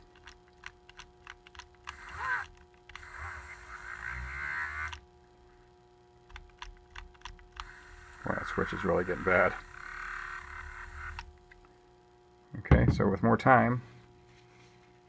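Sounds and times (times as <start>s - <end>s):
rotary tool whining: 1.4s - 5.0s, 7.1s - 11.7s.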